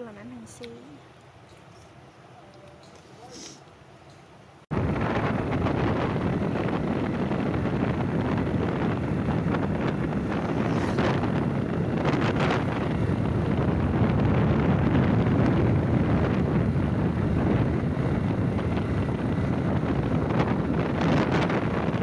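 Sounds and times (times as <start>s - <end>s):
road noise: 0.0s - 22.0s
wind buffeting microphone: 4.7s - 22.0s.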